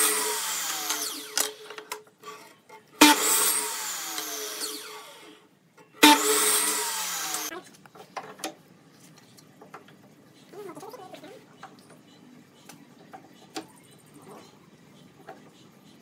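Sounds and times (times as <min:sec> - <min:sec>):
miter saw cutting wood: 0:00.0 - 0:01.7, 0:03.0 - 0:05.4, 0:06.0 - 0:07.5.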